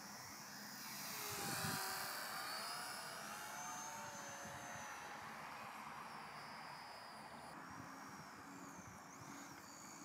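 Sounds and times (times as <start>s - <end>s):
model plane motor buzzing whine: 0.0s - 10.0s
wind buffeting microphone: 1.3s - 1.8s.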